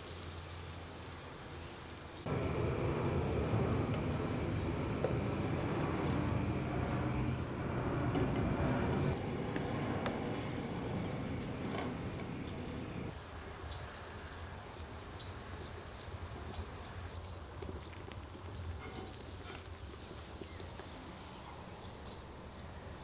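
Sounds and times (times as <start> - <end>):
gas burner rumble: 2.2 - 13.2.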